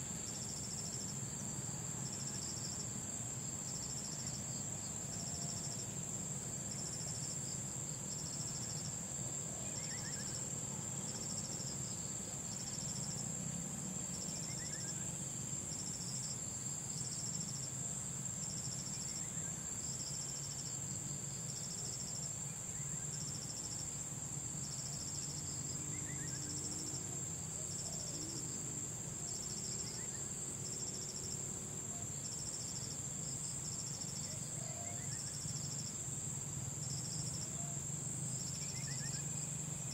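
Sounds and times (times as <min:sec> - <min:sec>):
lower insect trill: 0:00.0 - 0:39.9
high-pitched insect trill: 0:09.6 - 0:13.4, 0:14.0 - 0:39.9.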